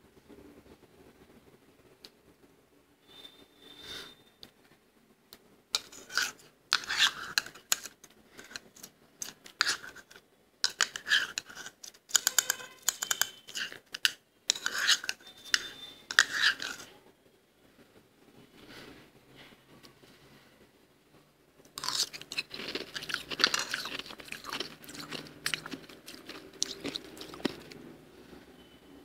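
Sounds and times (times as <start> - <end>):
spoon scraping frost in a bowl: 5.8 - 17.0, 21.8 - 27.8
spoon clicking against bowl: 12.1 - 15.2.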